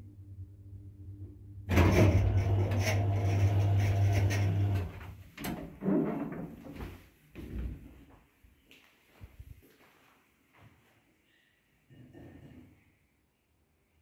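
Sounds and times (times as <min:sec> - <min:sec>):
lift doors sliding with motor hum: 0:01.7 - 0:06.4.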